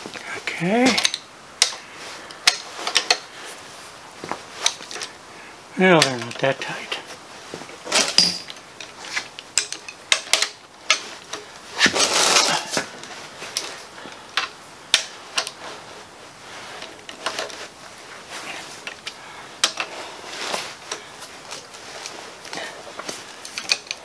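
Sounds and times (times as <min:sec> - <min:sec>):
wrench clicking on bolts: 0:09.4 - 0:11.0.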